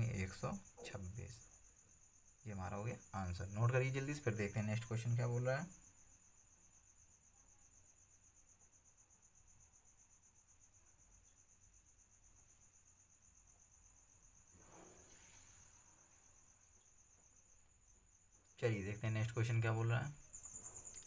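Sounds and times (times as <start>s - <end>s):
cricket trill: 0.0s - 21.0s
soft rush of noise: 14.5s - 16.4s.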